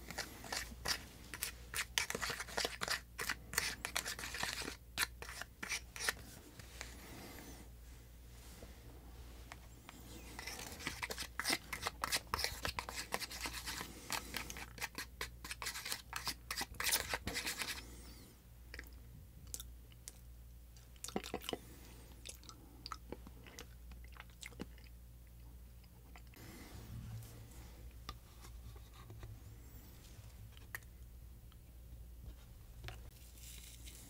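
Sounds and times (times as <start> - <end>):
plastic spoon scraping tray: 10.2 - 17.8.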